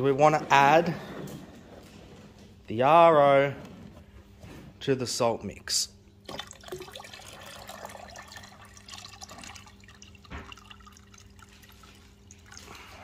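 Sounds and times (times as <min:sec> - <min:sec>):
water pouring into a tub: 0:06.3 - 0:13.0.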